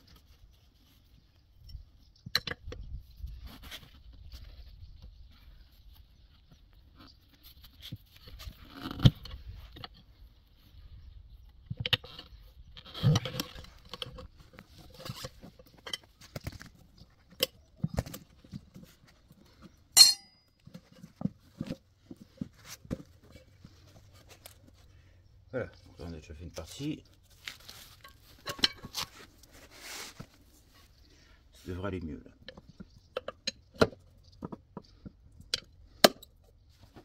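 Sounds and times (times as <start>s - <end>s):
tools knocking and scraping on rim: 19.6s - 24.3s, 27.9s - 30.3s.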